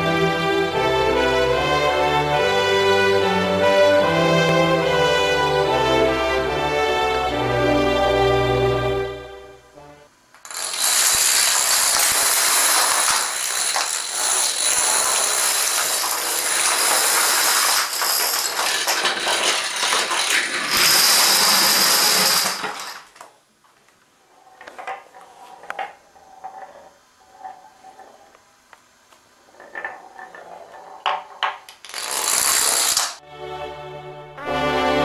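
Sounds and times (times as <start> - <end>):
dominoes toppling clatter: 10.4 - 23.3, 24.4 - 28.3, 29.5 - 33.2
quiet domino clicks: 29.5 - 33.2.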